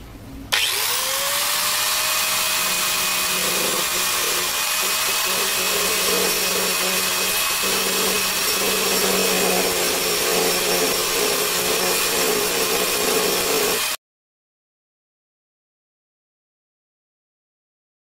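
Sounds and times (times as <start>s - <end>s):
angle grinder grinding plastic: 0.5s - 14.0s.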